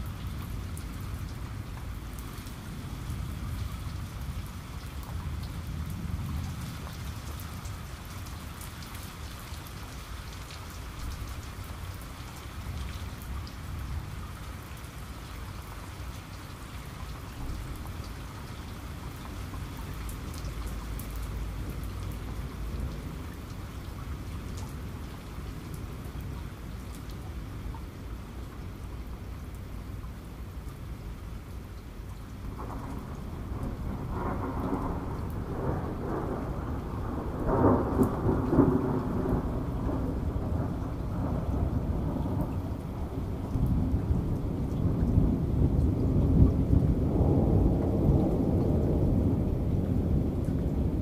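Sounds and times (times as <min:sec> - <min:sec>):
steady rain falling: 0:00.0 - 0:51.0.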